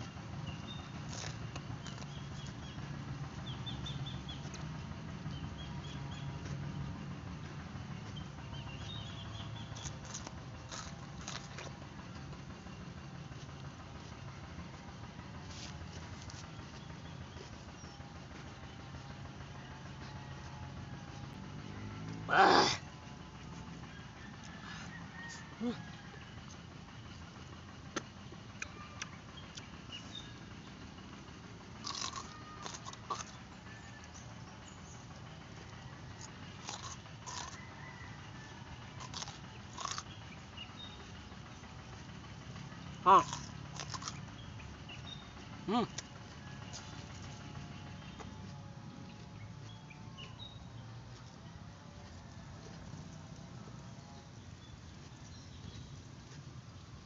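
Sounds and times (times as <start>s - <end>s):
chewing raw vegetable: 0.0s - 6.7s, 8.0s - 12.6s, 15.3s - 18.0s, 31.7s - 41.2s, 42.0s - 51.3s
steady low hum: 0.0s - 57.0s
crisp crunches: 1.0s - 2.5s, 9.8s - 11.8s, 31.8s - 33.4s, 36.6s - 37.6s, 39.0s - 40.0s, 43.2s - 44.2s.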